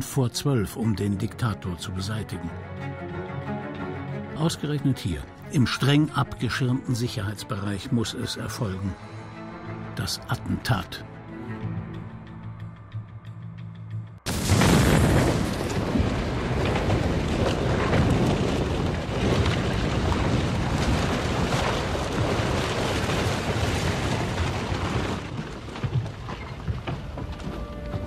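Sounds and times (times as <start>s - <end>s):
bomb explosion: 14.3s - 25.8s
rumble with crackling: 14.3s - 28.0s.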